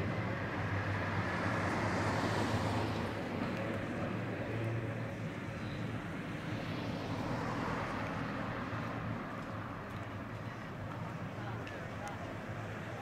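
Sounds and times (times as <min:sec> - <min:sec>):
electric tram running: 0:02.6 - 0:07.2.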